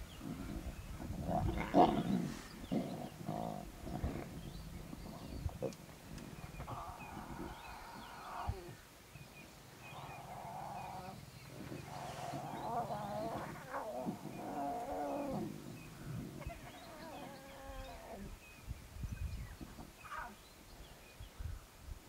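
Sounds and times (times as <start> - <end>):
lion cubs growling: 0.1 - 8.8, 9.8 - 18.4.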